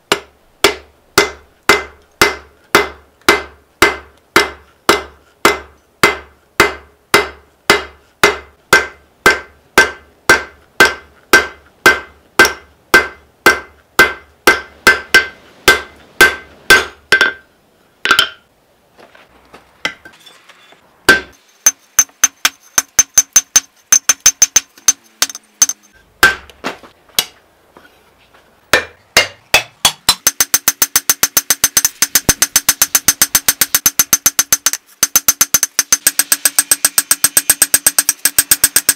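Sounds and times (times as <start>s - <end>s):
hammer ringing on anvil: 21.1s - 26.0s.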